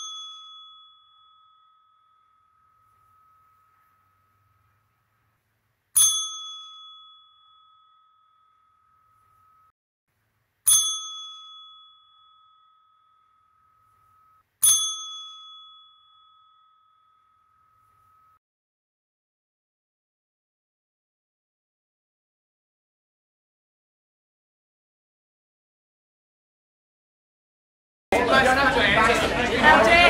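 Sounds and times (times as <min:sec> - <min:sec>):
bell ringing: 0:00.0 - 0:05.2, 0:06.0 - 0:09.7, 0:10.7 - 0:18.4.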